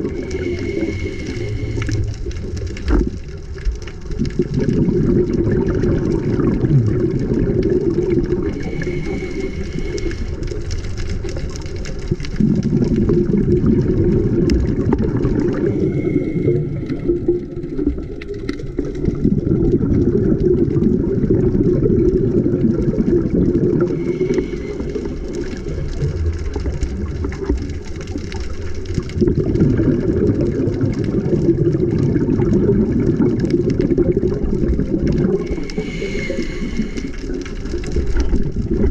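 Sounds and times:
scuba regulator breathing underwater: 0:00.0 - 0:03.0, 0:06.3 - 0:11.6, 0:12.3 - 0:20.0, 0:23.3 - 0:26.8, 0:33.8 - 0:38.8
exhaled bubbles underwater: 0:00.0 - 0:38.9.

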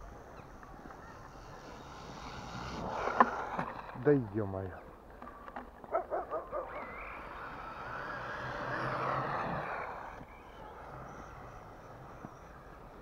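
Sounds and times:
toy car electric motor whining: 0:00.2 - 0:04.0, 0:06.4 - 0:13.0.

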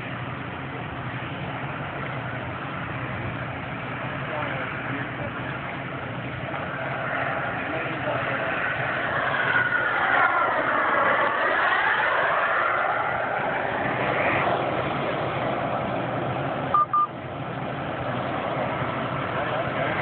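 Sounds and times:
model jet turbines roaring past: 0:00.0 - 0:20.0
short double beep: 0:16.7 - 0:17.1.

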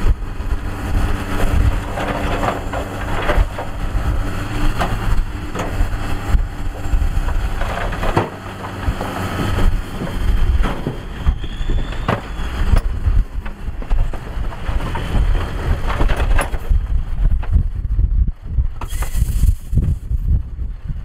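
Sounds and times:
truck engine rumbling: 0:00.0 - 0:21.0
wind buffeting microphone: 0:00.0 - 0:21.0
rocks tumbling off truck bed: 0:06.8 - 0:12.5, 0:13.4 - 0:16.9.

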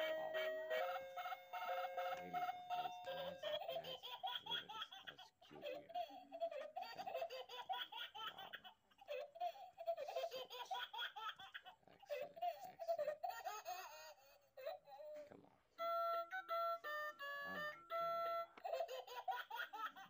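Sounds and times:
high-pitched giggling laughter: 0:00.0 - 0:14.9.

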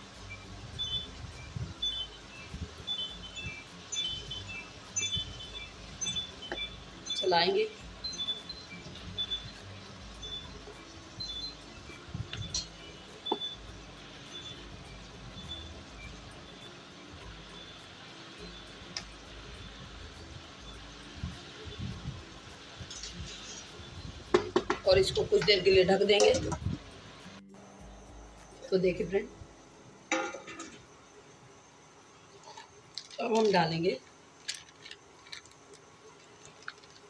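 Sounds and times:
spatula stirring corn in a pan: 0:22.9 - 0:24.8
spatula knocking in metal pan: 0:24.3 - 0:25.6.

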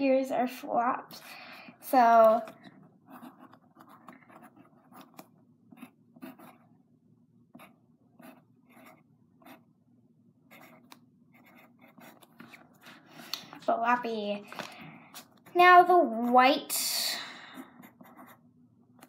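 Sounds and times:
pen scratching on paper: 0:03.1 - 0:06.7, 0:07.6 - 0:09.6, 0:10.5 - 0:12.6, 0:17.6 - 0:18.4.

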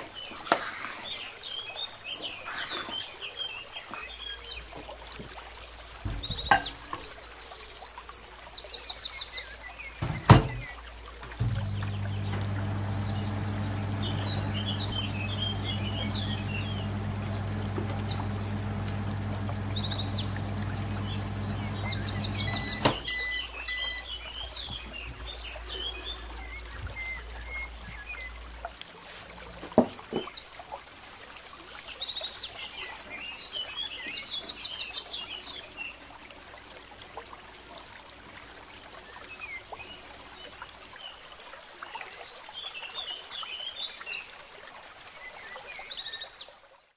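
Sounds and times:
birds chirping: 0:00.0 - 0:28.7
microwave click: 0:11.4 - 0:23.2
microwave oven humming: 0:11.4 - 0:23.3.

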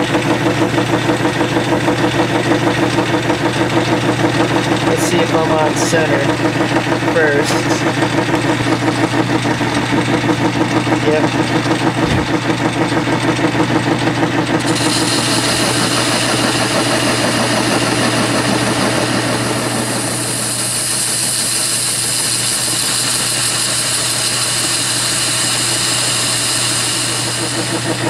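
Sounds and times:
lathe humming: 0:00.0 - 0:28.0
rhythmic pulsing chatter: 0:03.7 - 0:20.4
cutting tool hiss: 0:14.7 - 0:28.0.

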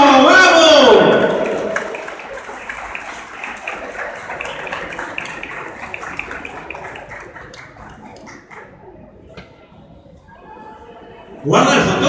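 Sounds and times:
audience applauding: 0:01.1 - 0:09.1.

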